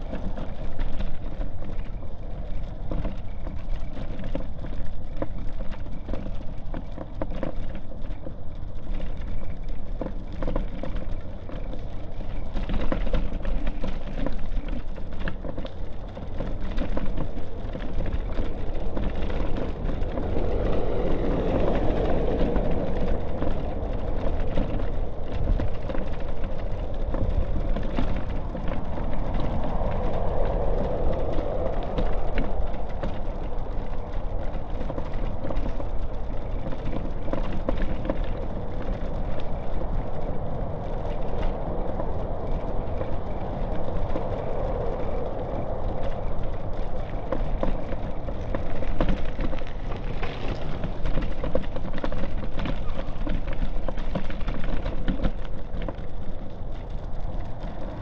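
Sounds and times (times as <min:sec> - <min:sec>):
low rumble: 0:08.1 - 0:58.0
passing traffic: 0:15.5 - 0:58.0.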